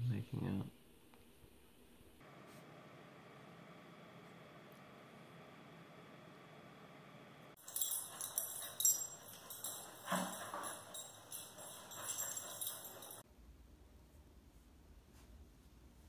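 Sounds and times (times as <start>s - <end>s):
dog collar tags jingling: 7.6s - 13.2s.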